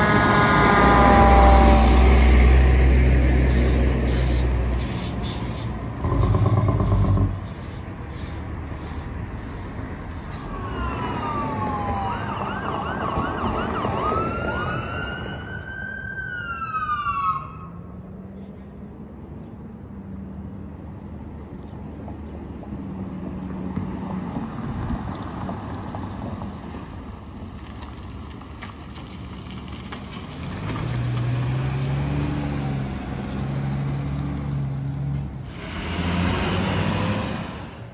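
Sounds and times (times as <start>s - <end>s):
fire truck siren wailing and yelping: 0.0s - 5.2s, 10.3s - 17.9s
ambulance engine hum: 0.0s - 22.0s, 24.2s - 37.9s
traffic noise: 0.0s - 37.9s
truck engine rumble: 0.0s - 37.9s.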